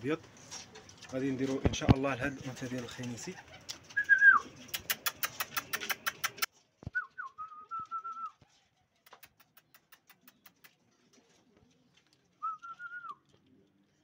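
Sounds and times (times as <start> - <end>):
pigeons cooing: 2.2 - 6.5
wavering whistle: 4.0 - 4.4
rapid faint clicks: 4.6 - 6.5, 9.1 - 10.8.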